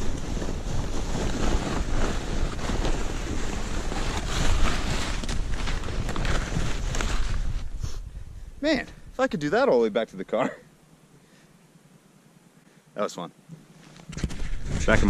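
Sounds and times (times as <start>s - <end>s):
hiss of sliding on snow: 0.0s - 8.8s.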